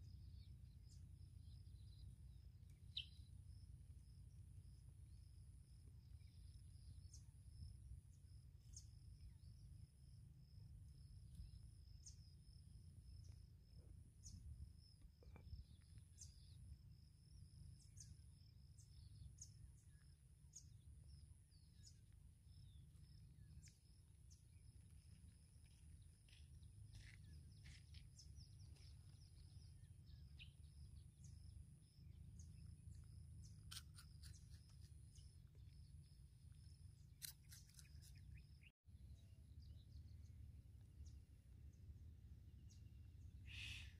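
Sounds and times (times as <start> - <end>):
bird chirps: 0.0 - 4.3, 42.6 - 43.9
low background rumble: 0.0 - 37.2.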